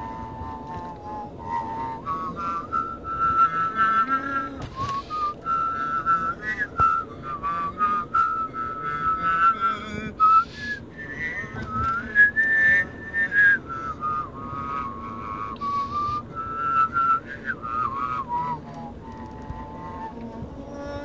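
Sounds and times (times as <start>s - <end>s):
person whistling a tune: 0.0s - 9.6s, 10.2s - 20.2s
low road noise: 0.0s - 21.0s.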